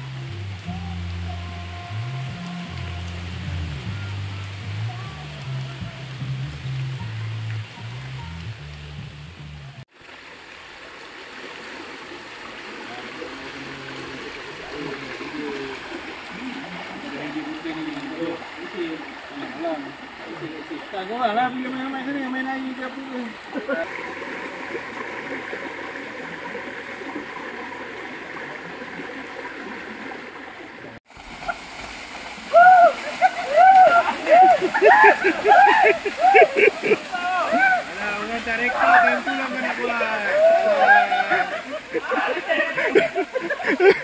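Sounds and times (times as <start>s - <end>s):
background music: 0.0s - 9.6s
rain: 0.0s - 44.0s
stream flowing over rocks: 0.0s - 44.0s.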